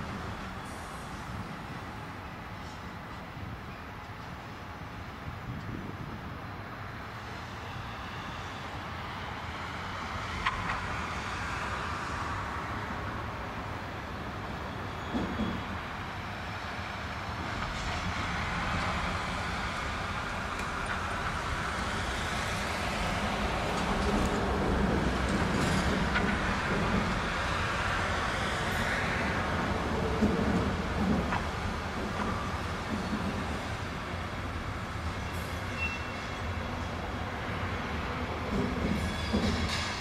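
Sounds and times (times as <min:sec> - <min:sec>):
distant rail and road traffic: 0:00.0 - 0:40.0.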